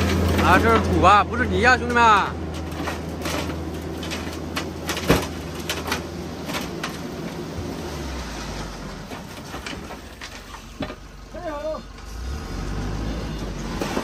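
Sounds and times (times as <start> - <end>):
soil sliding and clattering: 0.0 - 14.0
truck engine humming: 0.0 - 14.0.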